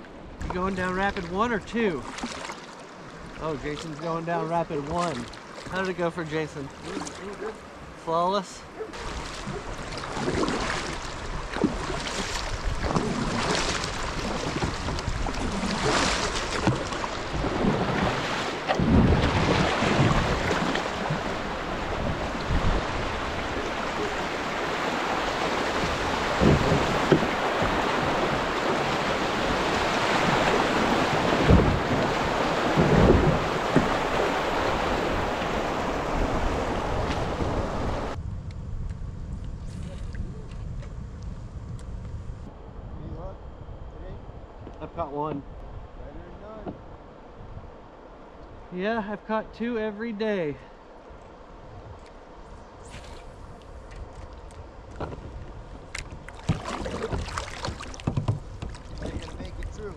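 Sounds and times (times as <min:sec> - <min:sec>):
paddle strokes splashing: 0:00.0 - 0:08.0, 0:08.6 - 0:38.2, 0:52.8 - 0:59.9
rushing river water: 0:00.0 - 0:38.2, 0:55.8 - 0:59.9
wind buffeting microphone: 0:08.7 - 0:48.8, 0:51.1 - 0:59.9.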